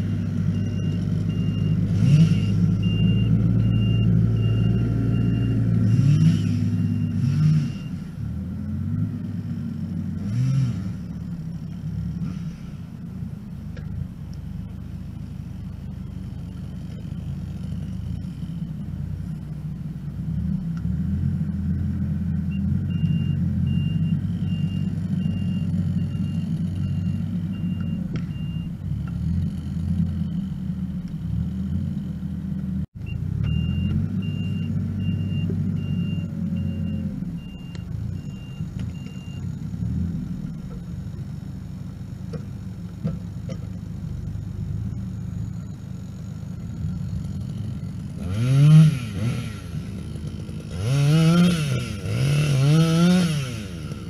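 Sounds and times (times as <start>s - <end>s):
loader diesel engine working hard: 0.0s - 54.0s
backup alarm beeping: 22.5s - 28.8s, 33.0s - 39.5s.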